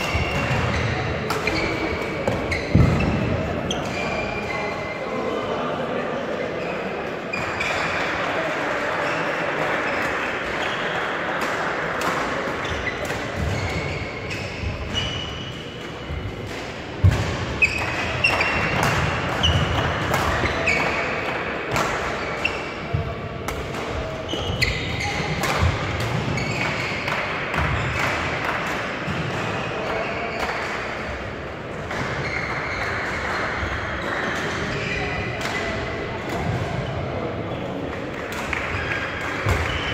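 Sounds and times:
rackets hitting shuttlecock: 0:00.0 - 0:04.0, 0:11.3 - 0:31.0, 0:31.8 - 0:37.0, 0:37.8 - 0:39.9
shoes squeaking on court: 0:00.0 - 0:04.9, 0:12.6 - 0:16.2, 0:24.2 - 0:27.1, 0:32.2 - 0:33.3
murmuring voices: 0:00.1 - 0:14.9.

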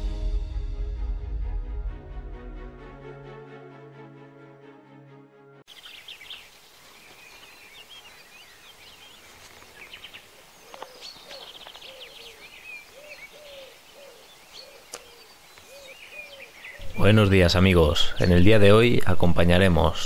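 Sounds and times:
small birds chirping and trilling: 0:05.7 - 0:19.9
low hooting call: 0:10.2 - 0:17.4.

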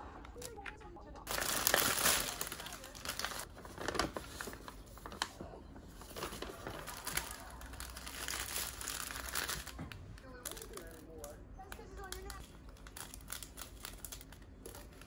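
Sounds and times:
plastic film crinkling: 0:00.3 - 0:15.0
plastic bags crackling: 0:01.2 - 0:15.0
paper unfolding: 0:01.3 - 0:05.4, 0:06.0 - 0:11.0.

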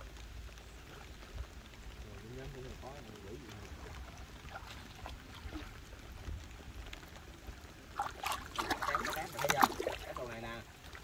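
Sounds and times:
small water drips: 0:00.0 - 0:11.0
water trickling and splashing: 0:00.0 - 0:11.0.

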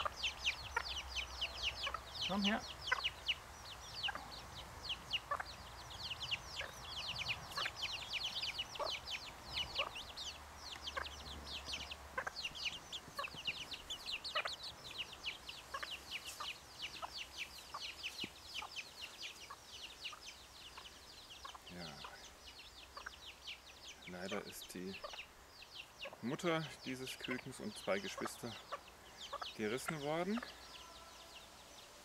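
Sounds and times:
hen clucking: 0:00.0 - 0:31.5
chicks peeping: 0:00.0 - 0:32.0.

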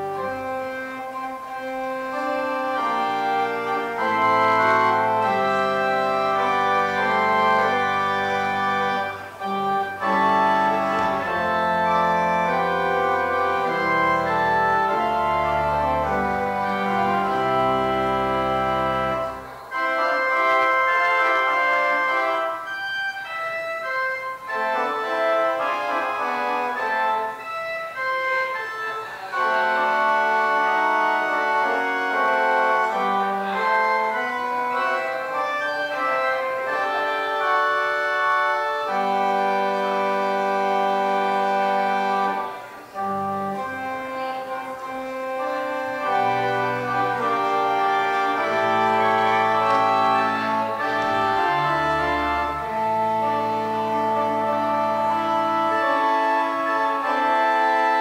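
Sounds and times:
organ playing chords: 0:00.0 - 0:58.0.

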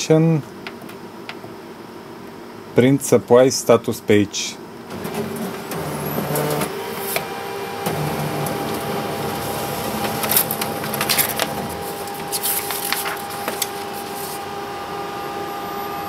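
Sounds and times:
laser printer humming: 0:04.9 - 0:16.0
paper rustling and clicking: 0:10.0 - 0:14.4.

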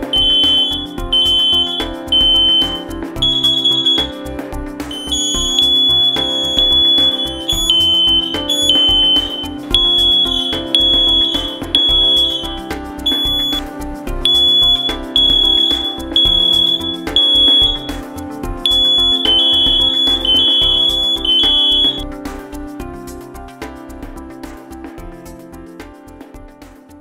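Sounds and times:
smoke alarm beeping: 0:00.0 - 0:04.2, 0:04.9 - 0:13.6, 0:14.2 - 0:22.0
background music with steady beat: 0:00.0 - 0:27.0.

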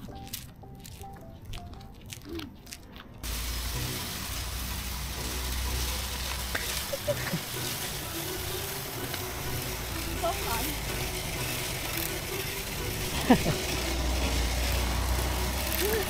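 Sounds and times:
branch scraping on concrete: 0:08.9 - 0:16.0.

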